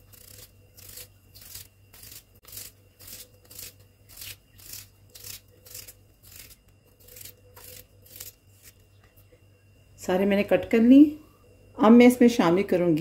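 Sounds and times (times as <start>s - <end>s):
knife slicing potato: 0.0s - 8.8s.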